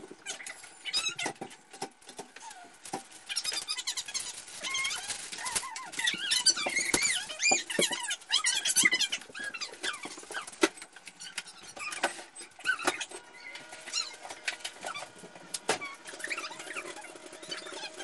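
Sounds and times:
plastic bags crinkling: 0:00.2 - 0:18.0.

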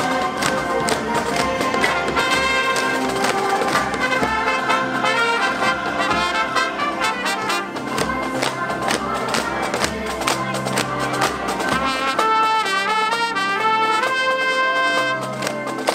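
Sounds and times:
brass music over steady beat: 0:00.0 - 0:15.9.

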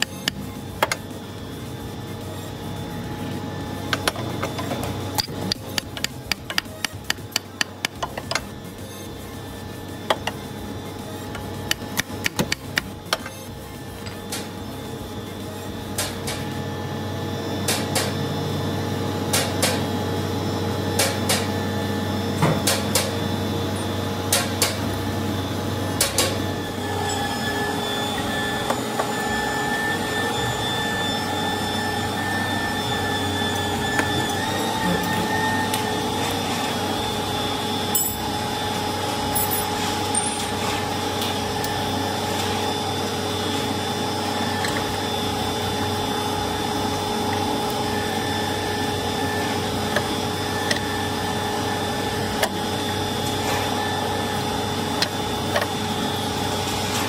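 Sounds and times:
steady hum: 0:00.0 - 0:57.0
steady humming tones: 0:00.0 - 0:57.0.

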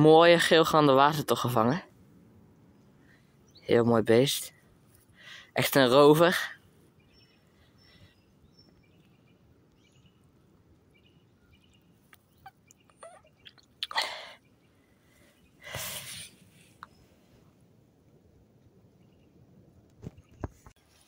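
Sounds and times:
faint high bird chirps: 0:07.0 - 0:17.2.

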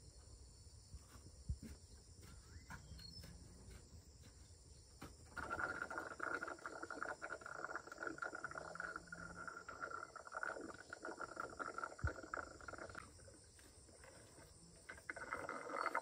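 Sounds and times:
insect buzzing: 0:05.2 - 0:16.0.

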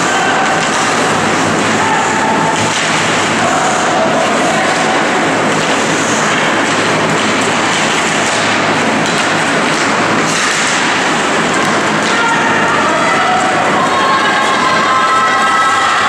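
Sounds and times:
faint clicks of sticks and puck: 0:00.0 - 0:12.4
crowd noise: 0:00.0 - 0:16.0.

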